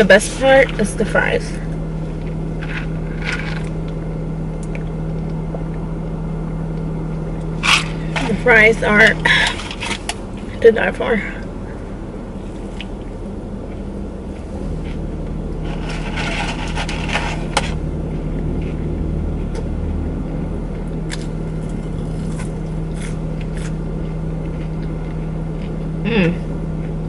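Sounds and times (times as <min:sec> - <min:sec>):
car engine idling: 0:00.0 - 0:27.0
chewing noises: 0:21.0 - 0:26.0.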